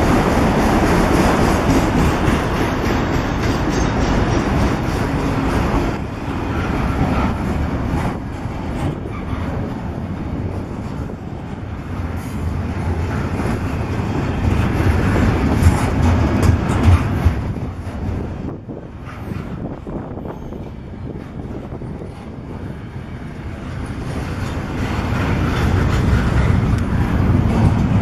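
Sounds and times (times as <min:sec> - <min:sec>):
sharp knocks of train cars: 0:00.0 - 0:06.0, 0:13.3 - 0:20.0
train wheels rumbling on rails: 0:00.0 - 0:28.0.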